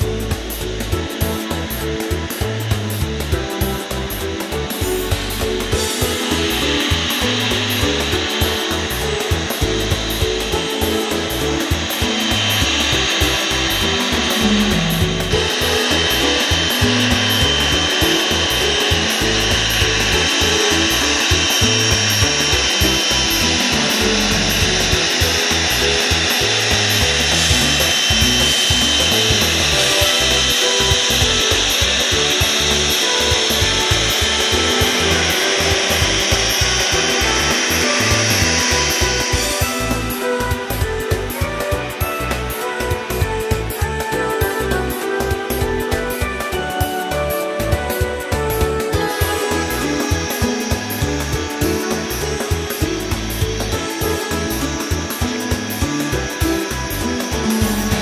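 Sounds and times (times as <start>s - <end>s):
background music: 0.0s - 58.0s
jet engines roaring with high whine: 3.9s - 42.8s.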